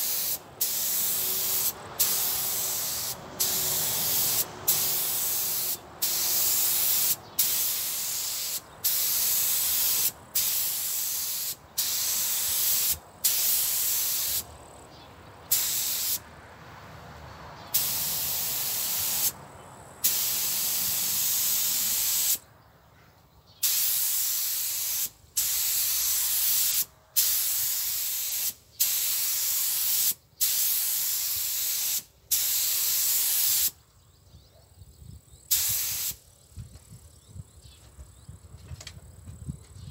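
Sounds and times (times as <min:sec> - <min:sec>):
paint spray gun hissing: 0:00.0 - 0:14.5, 0:15.5 - 0:16.2, 0:17.7 - 0:19.4, 0:20.0 - 0:22.4, 0:23.6 - 0:33.8, 0:35.5 - 0:36.2.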